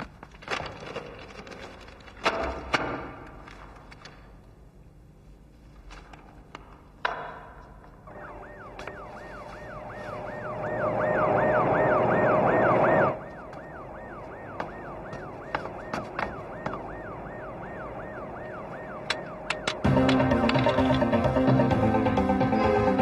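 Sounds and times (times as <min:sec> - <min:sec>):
police siren yelping: 0:08.1 - 0:23.0
rushing noise: 0:09.0 - 0:13.6.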